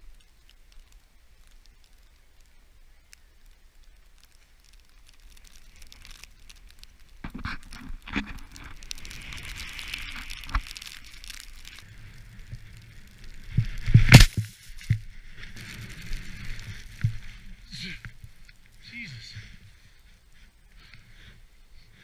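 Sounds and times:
snowboard scraping over snow: 11.8 - 17.8.

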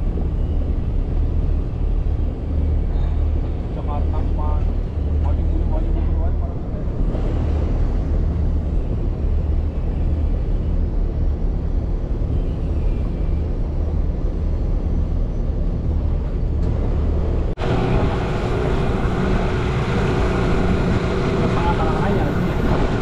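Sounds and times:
outboard motor running: 17.6 - 23.0
water rushing past hull: 17.6 - 23.0.

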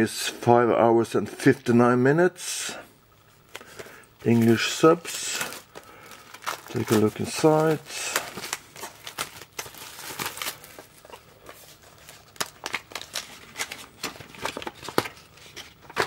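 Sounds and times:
plastic wrapping rustling: 3.3 - 16.0.

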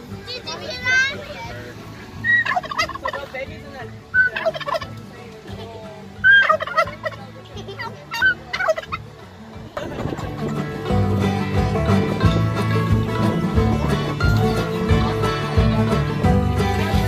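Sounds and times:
turkey gobbling: 2.2 - 3.3, 4.1 - 5.0, 6.2 - 10.3.

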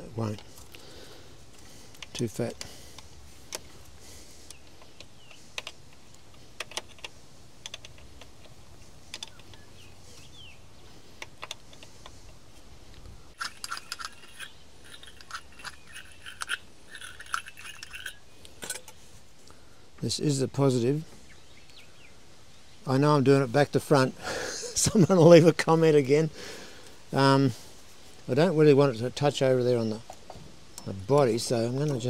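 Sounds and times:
hand tools clicking on metal: 13.4 - 19.0.

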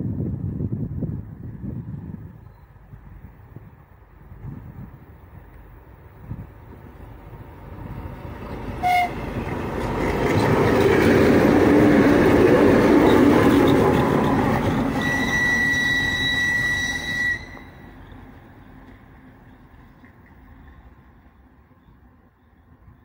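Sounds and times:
locomotive engines and wheels rumbling: 0.0 - 23.0
locomotive horn toot: 8.8 - 9.3, 14.9 - 18.1.

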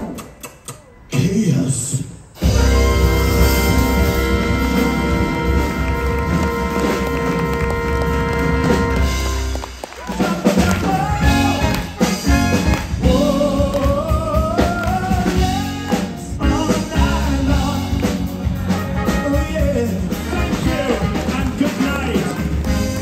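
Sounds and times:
band playing: 1.2 - 23.0
man singing: 10.1 - 23.0.

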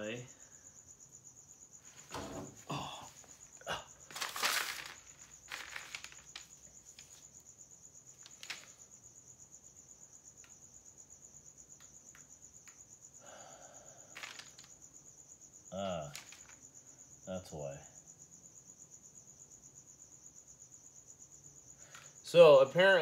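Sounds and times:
cricket chirping: 0.0 - 23.0
rustle: 3.2 - 9.0.

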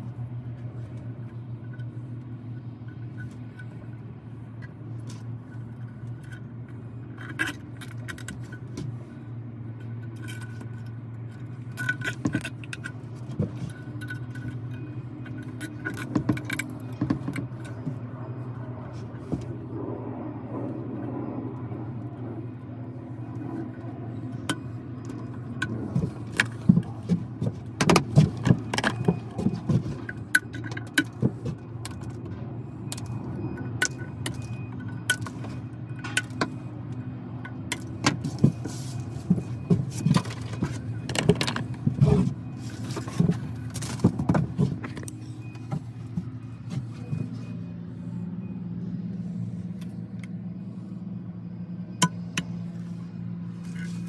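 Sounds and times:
low hum: 0.0 - 54.0
plastic parts clicking and rattling: 10.0 - 18.0, 24.4 - 47.2.

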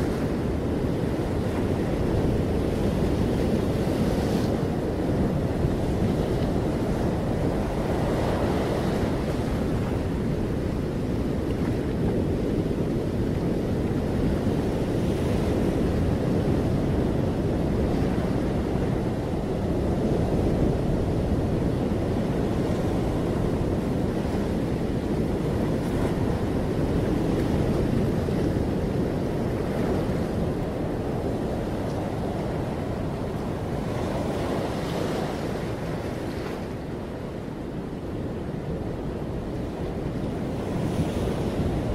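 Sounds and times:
ocean surf rushing: 0.0 - 41.9
wind: 0.0 - 41.9.

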